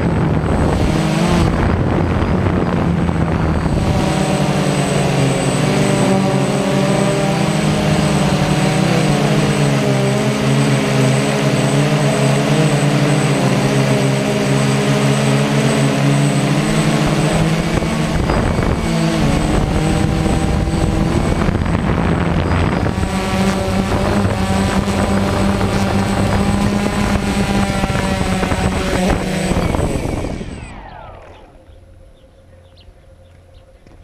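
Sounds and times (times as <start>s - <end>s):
drone propellers whirring: 0.0s - 34.0s.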